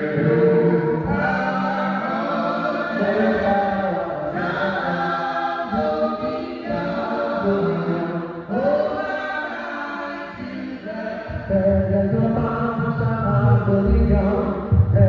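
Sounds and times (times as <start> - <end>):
group singing worship song: 0.0 - 15.0.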